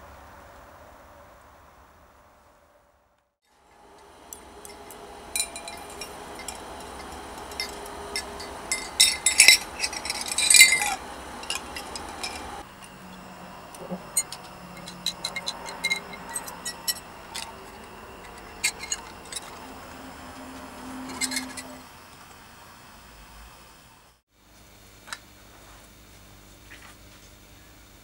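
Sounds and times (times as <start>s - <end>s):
stick clinking against glass jar: 4.6s - 12.6s.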